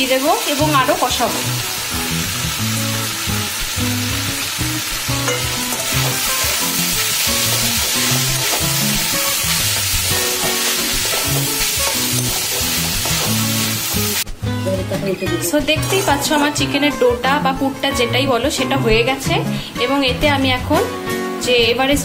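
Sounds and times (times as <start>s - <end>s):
filling sizzling in oil: 0.0s - 14.2s
metal spatula scraping pan: 15.8s - 16.5s.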